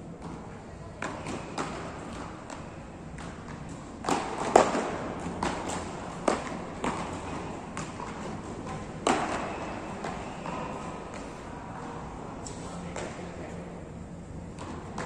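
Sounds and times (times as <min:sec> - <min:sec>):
paddles striking ball: 0:01.1 - 0:11.3.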